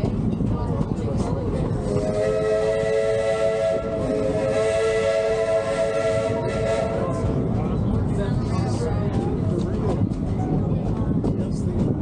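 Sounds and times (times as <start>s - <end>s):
moving train running noise: 0.0s - 12.0s
steam locomotive chime whistle: 2.0s - 7.3s.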